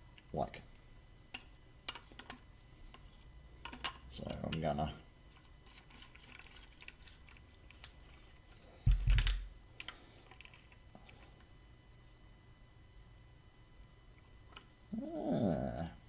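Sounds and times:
plastic and metal parts clicking: 5.3 - 8.2.

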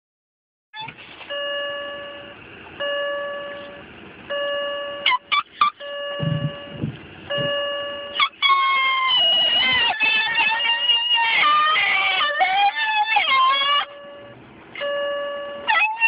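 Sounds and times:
car door warning chime: 1.3 - 8.3, 9.0 - 12.0, 13.5 - 15.8
dog yelping: 8.2 - 13.9.

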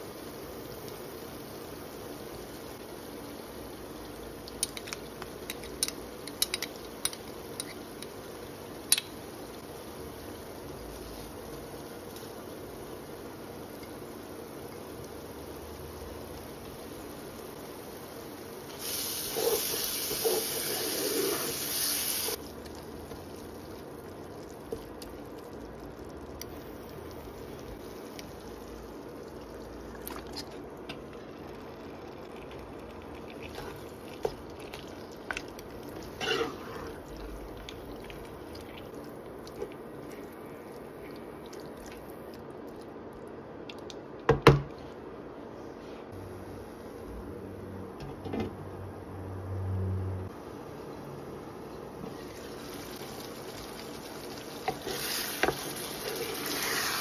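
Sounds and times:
sauce sizzling and bubbling: 0.0 - 43.2, 50.3 - 57.0
stirring clicks and squelches: 22.4 - 44.3.

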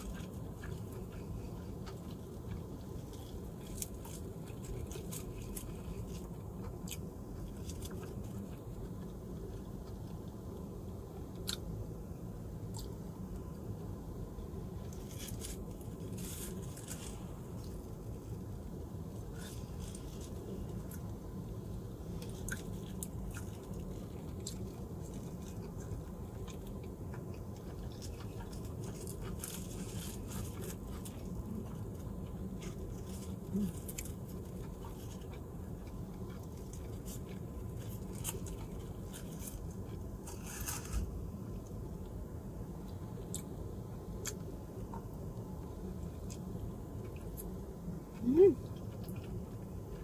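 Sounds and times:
person chewing food: 0.0 - 10.6, 22.1 - 41.8
steady low hum: 0.0 - 50.0.

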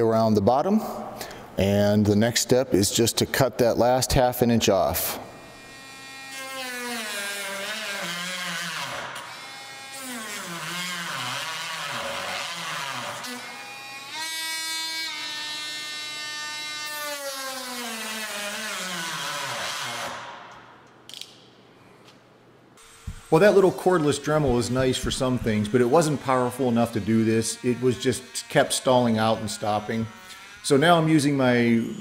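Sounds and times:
rotary tool whining while cutting plastic: 5.4 - 20.3, 24.5 - 31.1.

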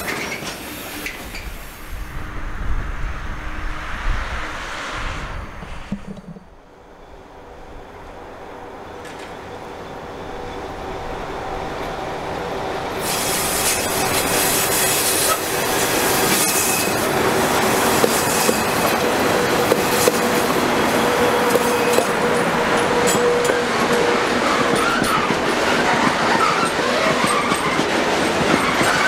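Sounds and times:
train wheels rumbling on rail: 0.0 - 29.0
clacks over rail joints: 21.5 - 29.0
wheel squeal: 22.9 - 29.0.

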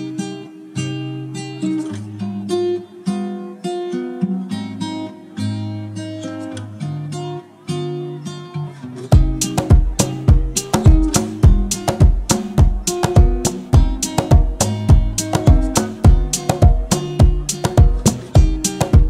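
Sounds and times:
acoustic guitar playing: 0.0 - 19.0
deep percussive beats: 9.1 - 19.0.

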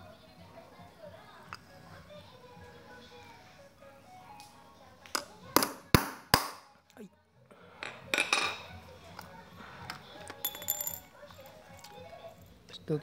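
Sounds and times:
hammer striking nail on metal: 5.6 - 6.6.

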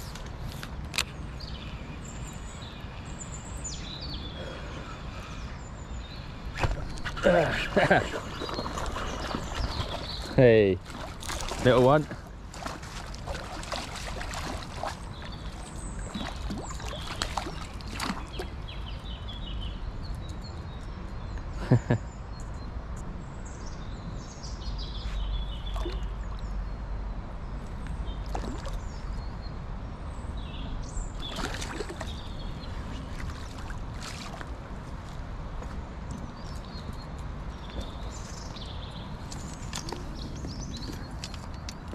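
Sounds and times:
small birds chirping: 0.0 - 41.9
fish splashing at surface: 12.6 - 15.0.

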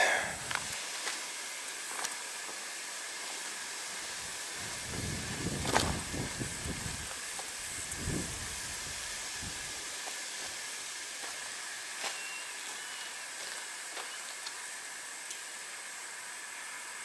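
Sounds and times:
steady outdoor hiss: 0.0 - 17.0
wind rumbling on microphone: 4.2 - 9.8
footsteps on rock: 5.6 - 6.1.

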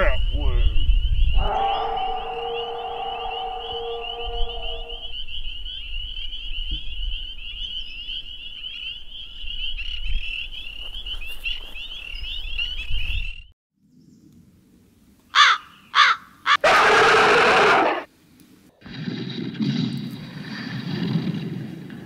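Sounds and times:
chorus of frogs calling: 1.1 - 9.0.

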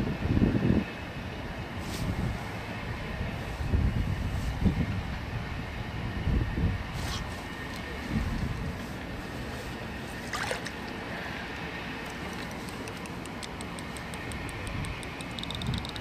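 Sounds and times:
wind rumble on microphone: 0.0 - 10.2, 14.2 - 16.0
fishing reel ticking: 12.1 - 16.0.

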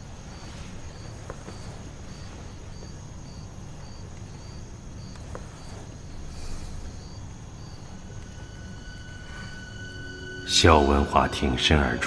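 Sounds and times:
cricket chirping: 0.0 - 12.0
low rumble of night ambience: 0.0 - 12.0.

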